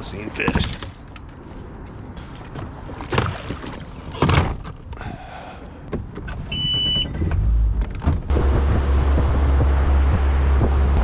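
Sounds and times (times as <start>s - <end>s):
boat motor humming: 8.3s - 11.0s.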